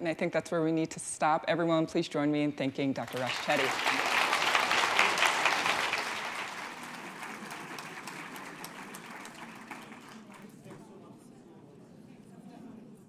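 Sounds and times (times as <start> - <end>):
audience applauding: 3.1 - 10.6.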